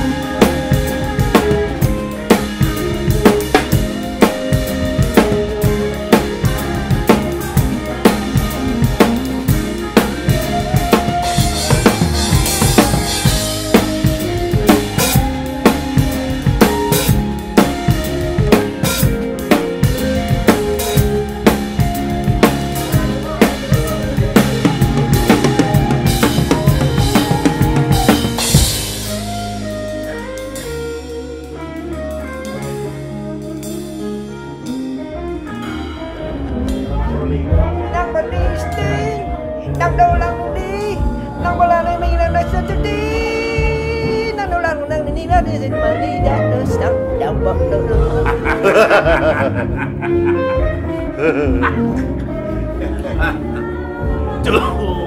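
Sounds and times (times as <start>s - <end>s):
drum kit playing fast: 0.0s - 39.1s, 47.8s - 52.2s
band playing chords: 0.0s - 55.0s.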